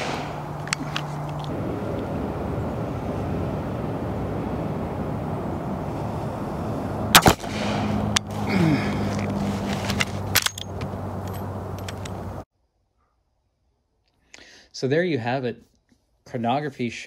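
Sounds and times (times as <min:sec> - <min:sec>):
rifle shot: 0:00.0 - 0:00.5, 0:07.1 - 0:08.1.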